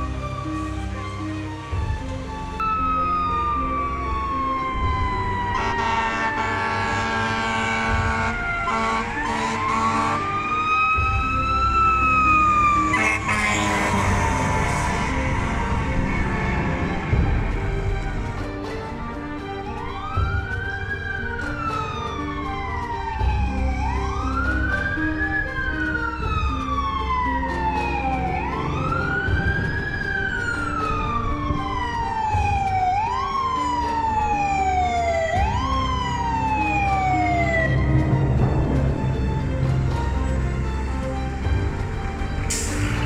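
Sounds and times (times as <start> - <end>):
background music: 0.0 - 43.0
fire engine siren wailing: 0.0 - 43.0.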